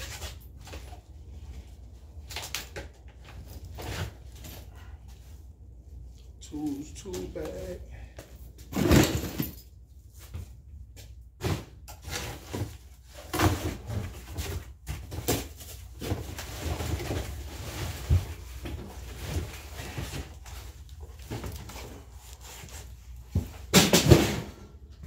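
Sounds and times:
bags and boxes rustling: 8.5s - 10.6s, 11.6s - 24.0s
objects bumping and knocking: 8.6s - 9.6s, 11.4s - 25.0s.

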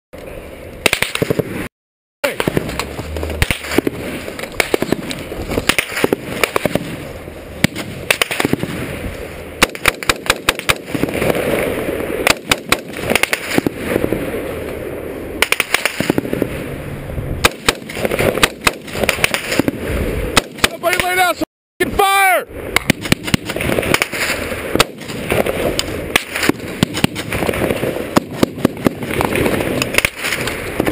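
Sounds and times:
small-arms gunfire bursts: 0.8s - 7.0s, 7.6s - 8.9s, 9.6s - 11.6s, 12.2s - 14.1s, 15.4s - 16.5s, 17.4s - 21.2s, 22.8s - 30.9s.

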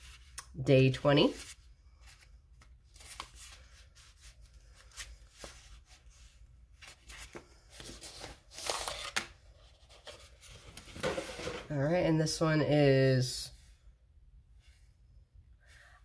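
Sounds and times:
paper box rustling and crinkling: 1.4s - 11.7s.

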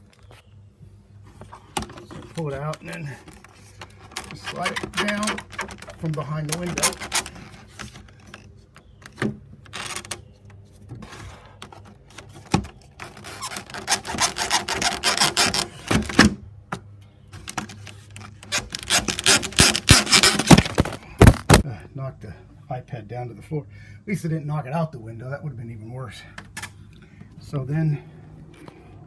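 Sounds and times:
plastic scraping against frame: 1.2s - 16.4s, 17.3s - 21.6s.

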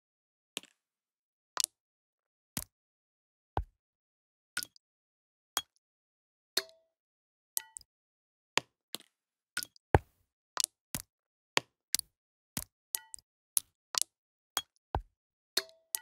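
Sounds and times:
water drops tapping objects: 4.6s - 4.8s, 5.6s - 5.8s, 6.6s - 6.8s, 7.6s - 7.9s, 8.6s - 9.8s, 10.6s - 16.0s.

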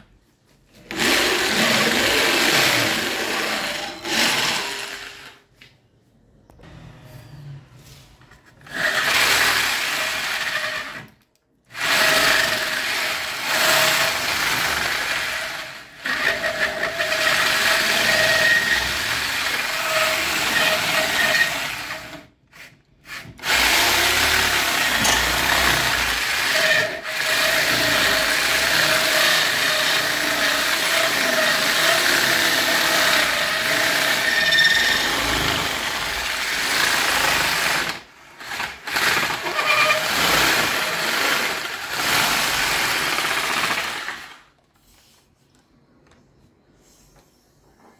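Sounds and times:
electric drill whining: 0.8s - 5.4s, 8.6s - 22.3s, 23.1s - 44.4s.

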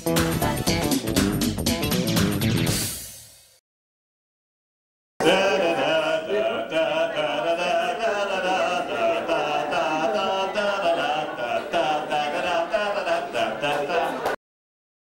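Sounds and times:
group of voices chanting: 5.2s - 14.4s.

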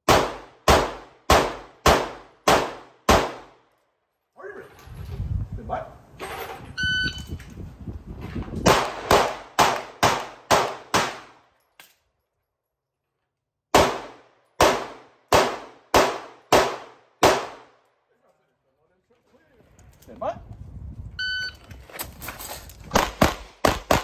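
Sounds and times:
pistol shots: 0.0s - 3.6s, 8.6s - 11.4s, 13.7s - 17.8s, 22.9s - 24.0s.

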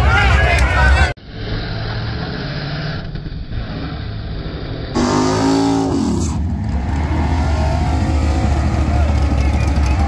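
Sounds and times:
drag race car engines running: 1.2s - 10.0s
loud engine revving down: 4.9s - 10.0s.

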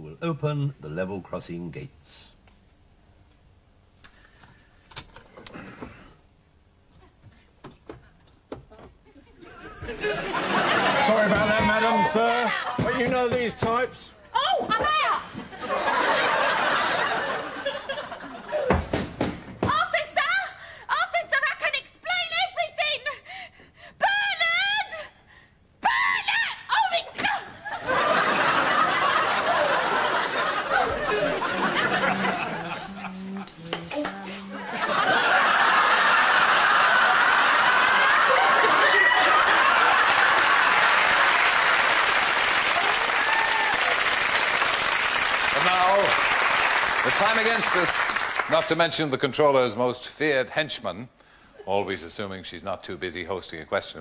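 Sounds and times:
group laughing: 9.1s - 12.9s, 15.5s - 18.7s, 27.4s - 33.7s, 34.5s - 41.4s.

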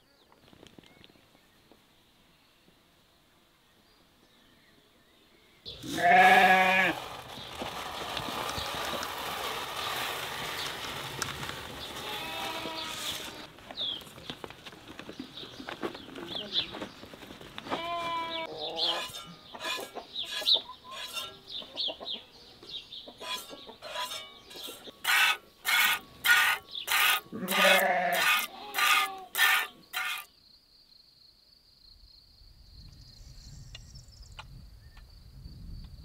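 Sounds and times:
high insect buzz: 25.1s - 30.3s
low wind rumble: 32.4s - 36.0s.

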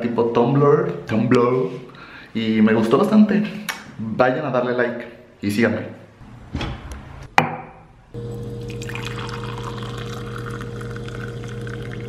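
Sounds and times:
water pouring into a mug: 8.3s - 12.0s.

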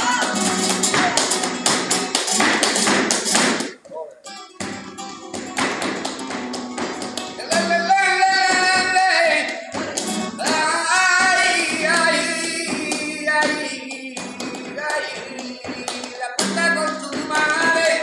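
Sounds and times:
person singing: 0.0s - 1.5s, 7.2s - 18.0s
rhythmic hand-clapping: 0.0s - 3.8s, 4.6s - 18.0s
flamenco guitar: 0.0s - 18.0s.

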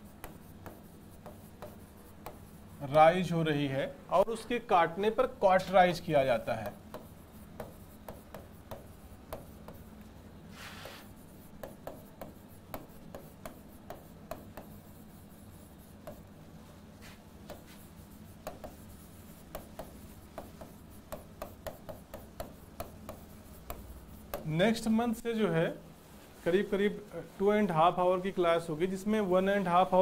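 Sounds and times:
pen writing on a board: 0.0s - 3.1s, 6.4s - 16.4s, 17.0s - 24.9s.

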